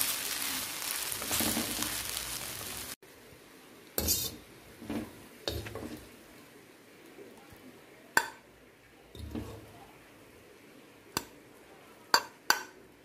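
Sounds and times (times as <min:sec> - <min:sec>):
food sizzling in a wok: 0:00.0 - 0:07.1
spatula scraping a wok: 0:01.2 - 0:02.2, 0:04.0 - 0:06.1, 0:09.2 - 0:09.7.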